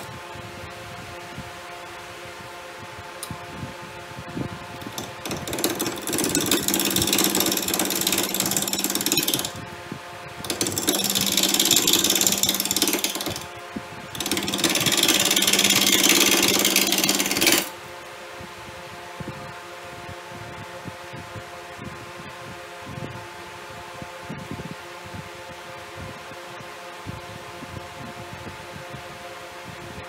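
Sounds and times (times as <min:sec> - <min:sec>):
steady hum: 0:00.0 - 0:30.0
power tool cutting wood: 0:04.8 - 0:09.6, 0:10.5 - 0:13.5, 0:14.1 - 0:17.7.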